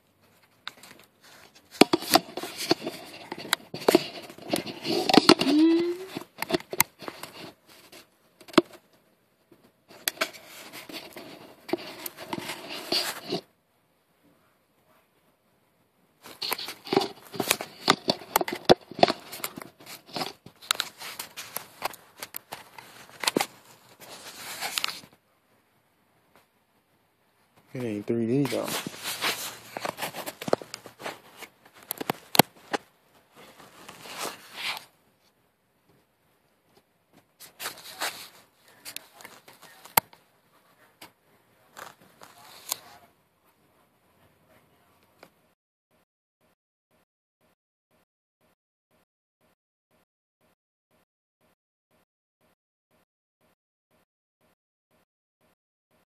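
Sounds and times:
plastic cup handling noise: 0.5 - 8.8, 9.9 - 13.4, 16.2 - 25.2, 27.8 - 34.9, 37.4 - 40.2.

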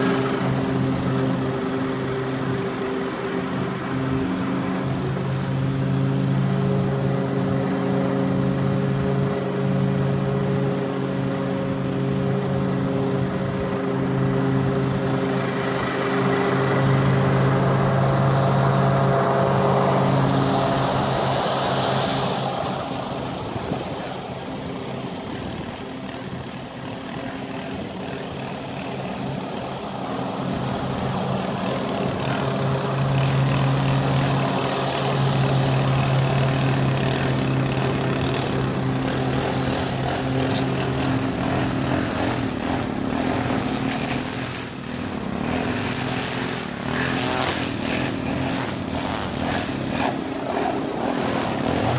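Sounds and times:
lawn mower engine running: 0.0 - 51.9
string trimmer buzzing: 0.0 - 51.9.

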